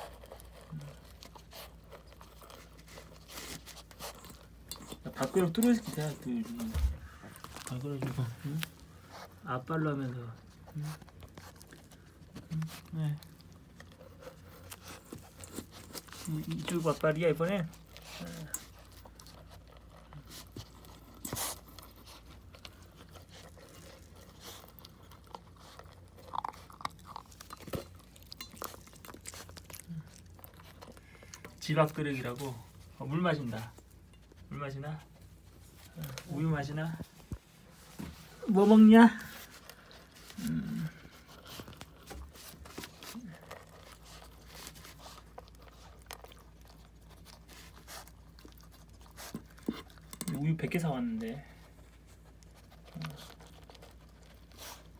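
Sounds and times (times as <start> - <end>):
dog crunching dry kibble: 0.0 - 37.4, 38.2 - 54.9
kibble clicking on metal bowl: 50.0 - 50.5.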